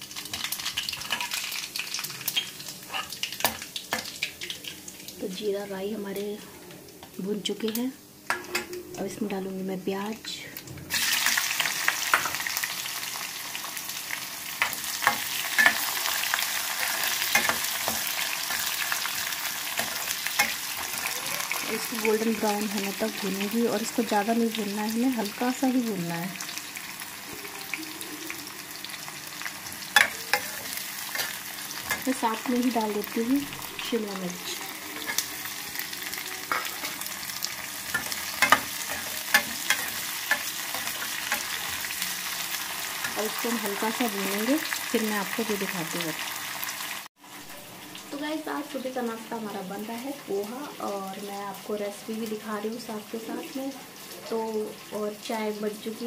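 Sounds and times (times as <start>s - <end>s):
onions sizzling in hot oil: 0.0s - 56.0s
metal spoon scraping pan: 2.3s - 3.2s, 37.8s - 42.0s
steel spoon scraping a pan: 2.3s - 3.2s, 29.7s - 32.2s, 34.9s - 43.2s.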